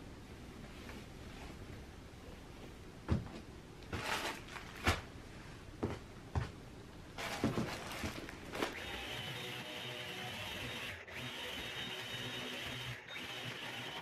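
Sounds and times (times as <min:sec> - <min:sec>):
handling knocks and thumps: 0:03.0 - 0:05.1, 0:07.2 - 0:08.8
rustling: 0:03.9 - 0:05.5, 0:07.2 - 0:08.8
stick vacuum whirring: 0:07.2 - 0:14.0.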